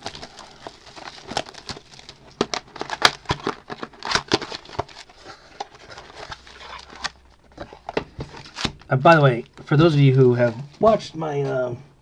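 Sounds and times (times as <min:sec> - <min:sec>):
cardboard box crinkling and clicking: 0:00.0 - 0:08.9.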